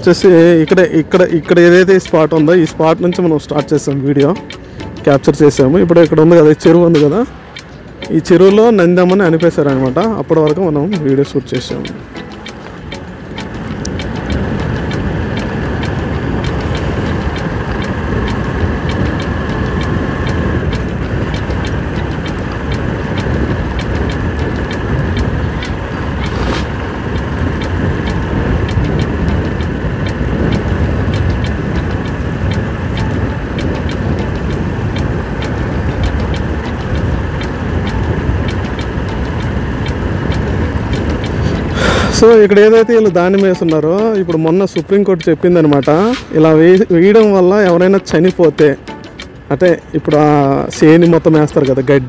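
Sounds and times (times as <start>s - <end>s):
motorcycle engine running: 0.0s - 52.0s
wind rumble on microphone: 11.3s - 52.0s.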